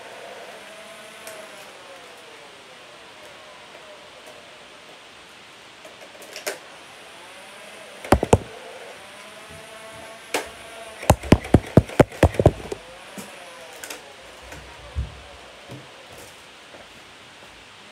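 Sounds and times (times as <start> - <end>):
toy blaster firing darts: 8.1 - 8.5, 11.1 - 12.8.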